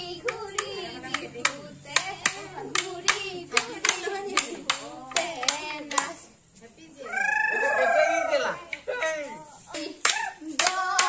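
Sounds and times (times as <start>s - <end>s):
sharp rhythmic claps: 0.0s - 6.4s, 8.7s - 11.0s
women singing: 0.0s - 7.0s, 8.7s - 11.0s.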